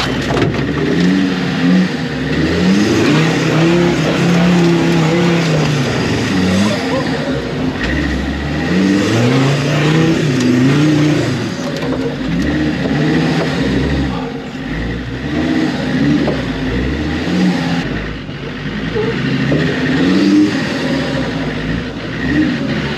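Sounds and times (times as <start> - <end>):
race car engine revving: 0.0 - 22.9.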